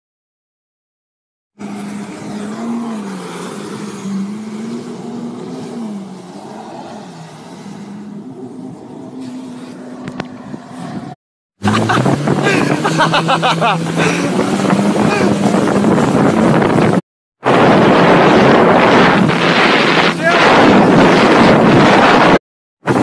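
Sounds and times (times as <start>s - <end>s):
rushing water: 1.6s - 10.9s, 11.6s - 23.0s
jet ski engine revving: 1.6s - 23.0s
wind noise: 9.8s - 23.0s.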